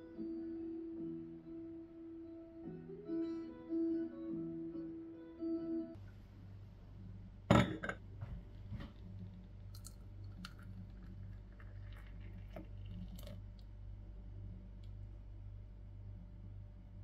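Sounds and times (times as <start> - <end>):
low hum: 6.0 - 17.0
cup clinking against saucer: 7.5 - 8.0
coffee pouring into cup: 8.7 - 13.8.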